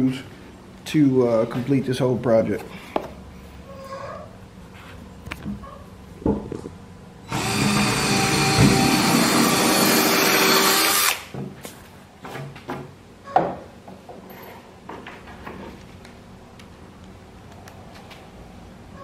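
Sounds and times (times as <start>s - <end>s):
cordless drill boring into wood: 7.3s - 11.3s.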